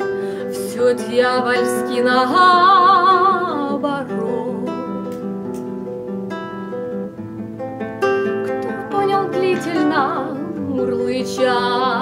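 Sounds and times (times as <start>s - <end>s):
woman singing with vibrato: 0.0s - 5.2s, 8.6s - 12.0s
classical guitar plucking: 0.0s - 12.0s.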